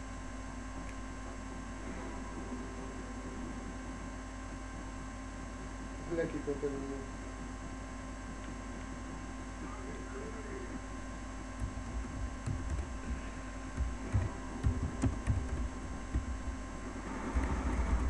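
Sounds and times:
electrical hum: 0.0s - 18.0s
low thumps: 11.6s - 18.0s.

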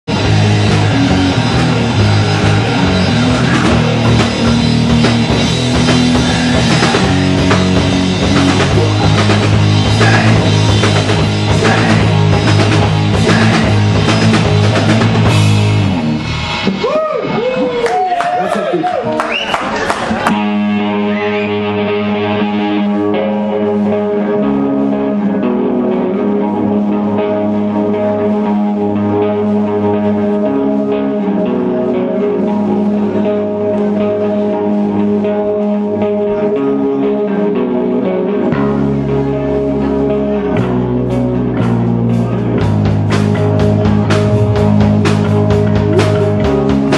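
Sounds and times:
bass guitar riffing: 0.0s - 46.9s
electric guitar riffing: 0.0s - 46.9s
drum kit hits: 0.1s - 17.0s.

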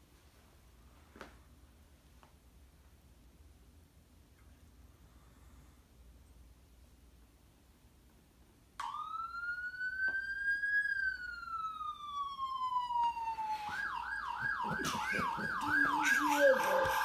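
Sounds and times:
siren wailing and yelping: 8.8s - 17.0s.

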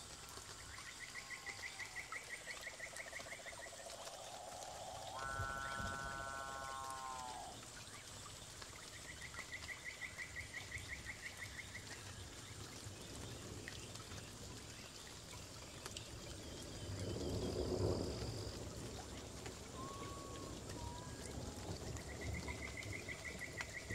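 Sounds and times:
pitched animal call: 5.1s - 7.6s
thin steady high whistle: 19.7s - 22.4s.

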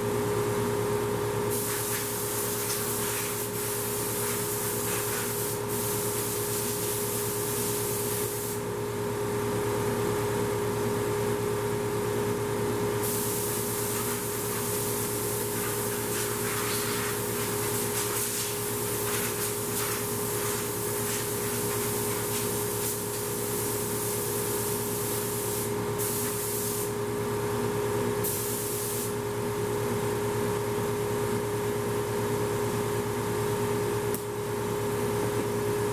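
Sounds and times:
air blow gun hissing: 1.5s - 8.6s, 13.0s - 27.0s, 28.2s - 29.2s.

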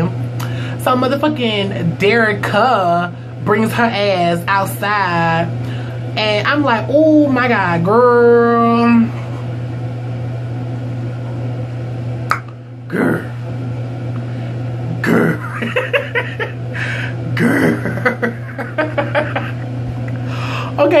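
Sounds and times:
low hum: 0.0s - 21.0s
man laughing: 15.0s - 19.8s.

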